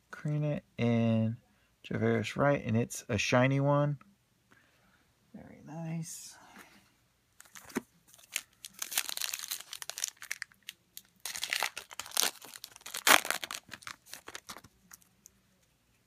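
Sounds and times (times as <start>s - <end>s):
foil wrapper tearing and crinkling: 8.2s - 15.0s.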